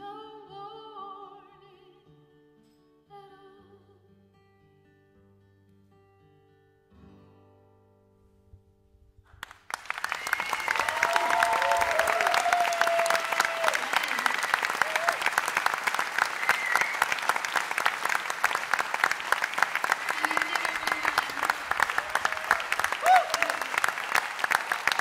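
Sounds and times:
audience applause: 0:09.4 - 0:25.0
audience cheering: 0:09.7 - 0:25.0.

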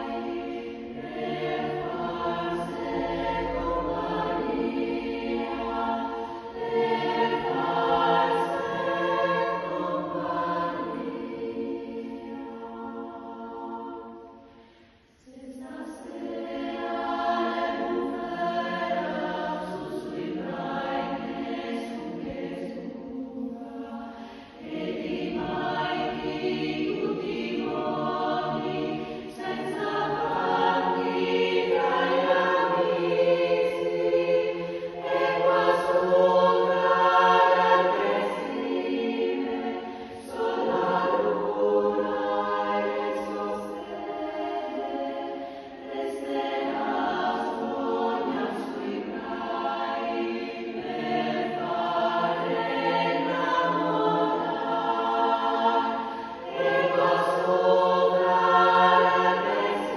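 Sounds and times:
choir singing: 0:00.0 - 0:59.9
singers breathing: 0:14.3 - 0:15.2, 0:24.0 - 0:24.7, 0:39.8 - 0:40.2, 0:45.4 - 0:45.8, 0:56.0 - 0:56.4.

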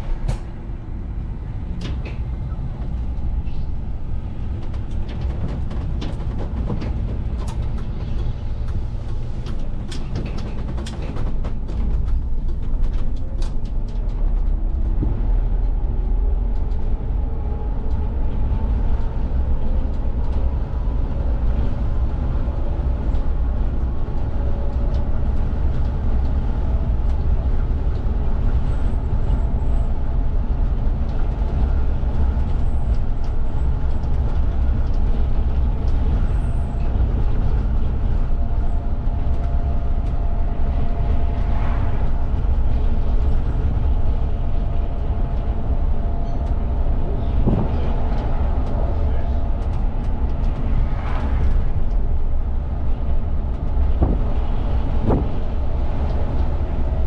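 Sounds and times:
bus engine and tyres rumbling: 0:00.0 - 0:57.0.

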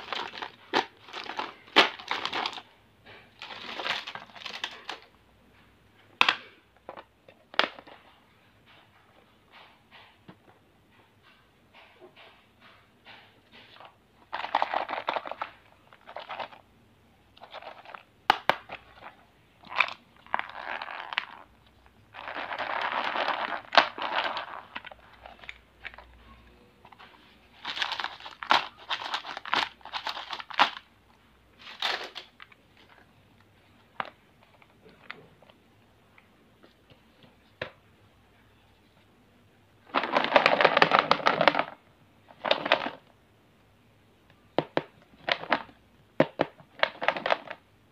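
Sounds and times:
candy wrapper crinkling: 0:00.0 - 0:02.7, 0:03.4 - 0:05.1, 0:17.4 - 0:26.1, 0:27.5 - 0:30.9, 0:31.6 - 0:33.0.

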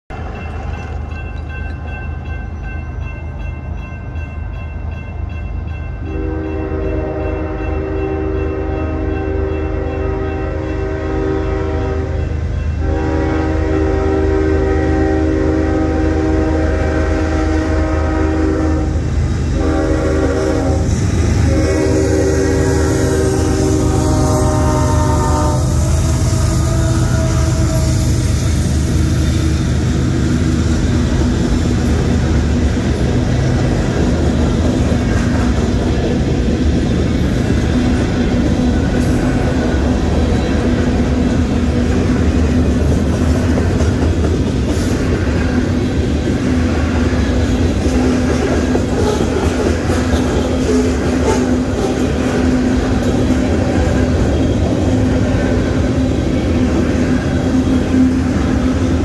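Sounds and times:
steel wheels on rails: 0:00.1 - 0:59.0
train horn blasts: 0:06.0 - 0:28.3, 0:50.2 - 0:56.6.

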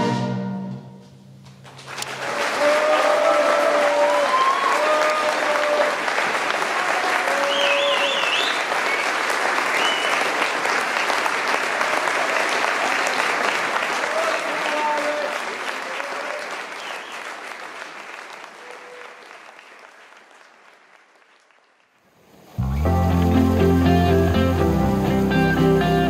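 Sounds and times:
audience applause: 0:01.6 - 0:26.0
audience cheering: 0:01.9 - 0:21.7.

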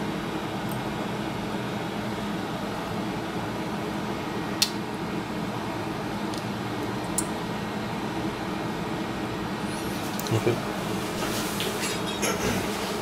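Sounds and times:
low hum and hiss: 0:00.0 - 0:13.0.

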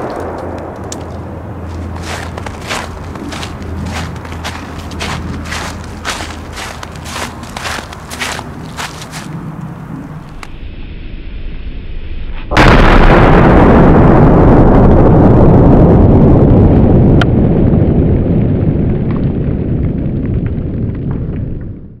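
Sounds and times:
firecracker blast: 0:00.0 - 0:05.4, 0:12.6 - 0:16.0
loud rumbling noise: 0:00.0 - 0:10.7.

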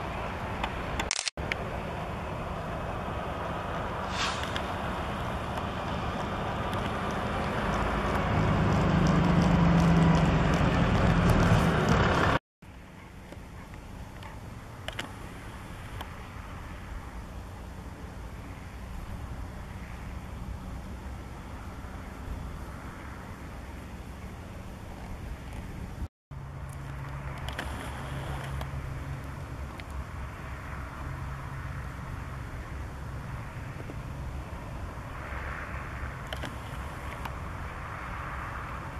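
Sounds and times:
tractor engine running under load: 0:00.0 - 0:12.4.

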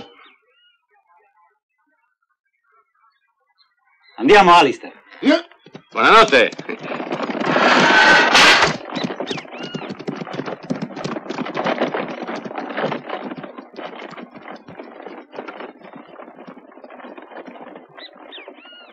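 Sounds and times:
hooves clopping: 0:05.1 - 0:18.9
carriage wheels clattering: 0:05.7 - 0:18.9.

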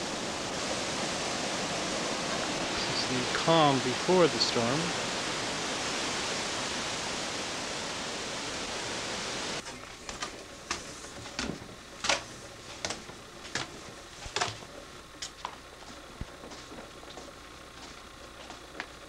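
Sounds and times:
storm wind rushing: 0:00.0 - 0:09.6.

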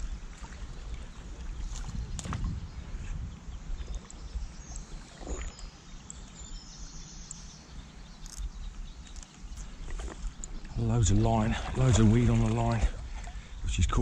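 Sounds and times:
wind buffeting microphone: 0:00.0 - 0:05.6, 0:08.5 - 0:14.0
small waves lapping: 0:00.0 - 0:06.3, 0:07.6 - 0:14.0
faint bird chirps: 0:01.0 - 0:11.1.

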